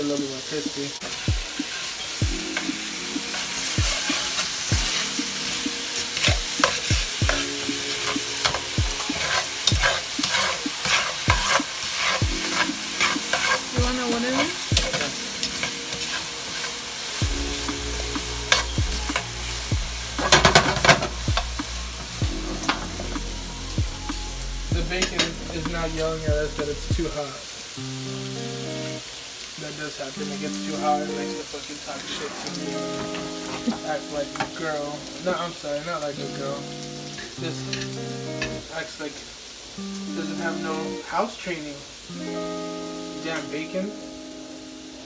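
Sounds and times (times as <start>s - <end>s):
bacon frying: 0.0s - 45.0s
chicken sizzling in a skillet: 0.0s - 45.0s
utensil scraping a pan: 3.3s - 17.2s, 20.1s - 21.5s, 32.0s - 33.8s.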